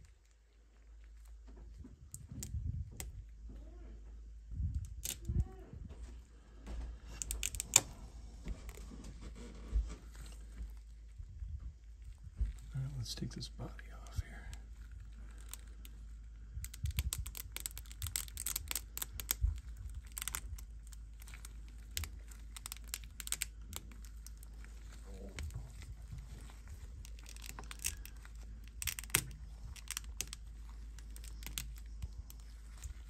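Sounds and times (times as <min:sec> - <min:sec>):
resin struts snapping: 0:07.1 - 0:08.0, 0:16.6 - 0:24.5, 0:27.0 - 0:33.0.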